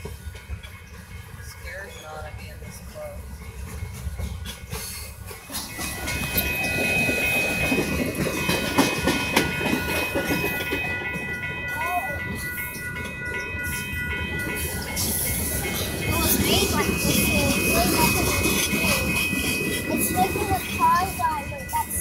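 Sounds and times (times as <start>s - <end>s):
freight train wheels rumbling: 0.0s - 22.0s.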